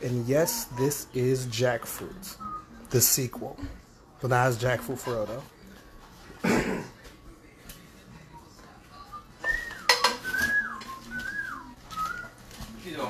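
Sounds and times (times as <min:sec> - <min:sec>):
spoon clinking against bowls: 0:09.7 - 0:10.6.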